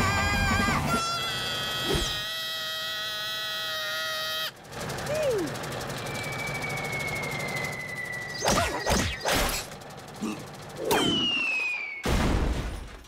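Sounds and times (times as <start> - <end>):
high falling cartoon whistle: 6.0 - 9.2, 10.9 - 12.3
cartoon whacks: 8.4 - 9.6
loud crash: 11.0 - 13.0.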